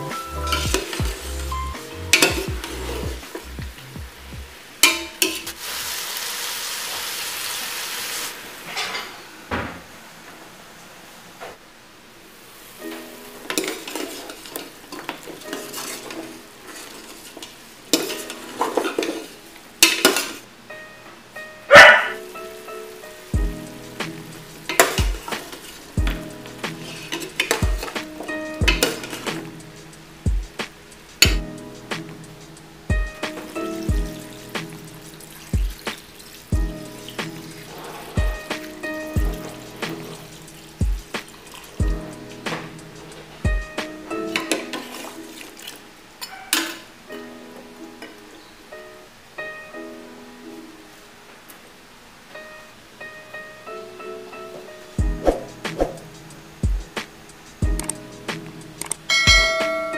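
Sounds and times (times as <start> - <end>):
slow beat background music: 0.0 - 4.6, 22.2 - 45.7, 55.0 - 59.9
ribs sizzling in a pot: 0.0 - 8.8, 12.4 - 20.4, 22.2 - 45.9
spatula scraping a metal pot: 0.3 - 3.6, 13.5 - 20.4, 24.4 - 29.6, 37.0 - 40.5.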